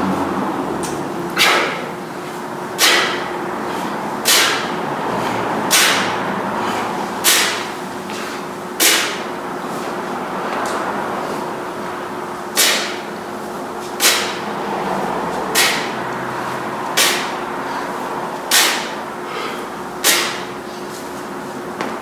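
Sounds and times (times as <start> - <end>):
sharp breath hiss: 18.5 - 20.4.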